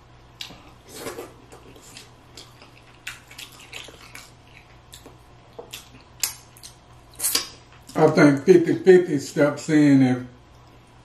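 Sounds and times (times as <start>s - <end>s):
mouth smacks while eating: 1.6s - 8.0s.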